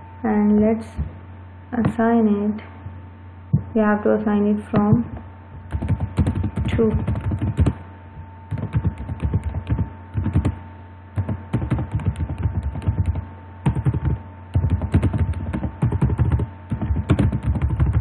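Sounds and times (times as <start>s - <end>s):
faint electrical hum: 0.0s - 18.0s
computer keyboard typing: 5.7s - 7.8s, 8.5s - 10.6s, 11.2s - 18.0s.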